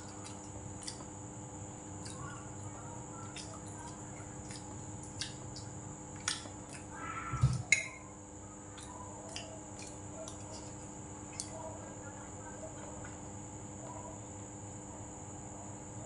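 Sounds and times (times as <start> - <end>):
utensils clicking against bowls: 7.6 - 8.0.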